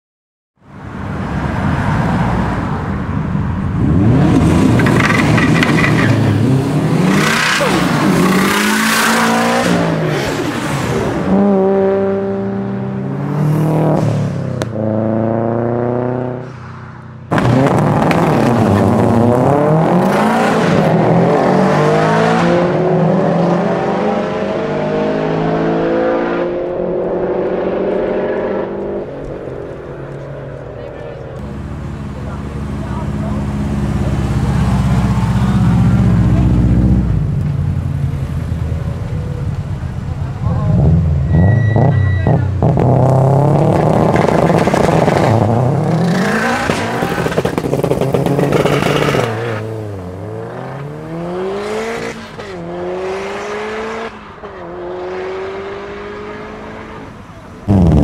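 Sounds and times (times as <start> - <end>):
car engine accelerating: 17.3 - 58.0.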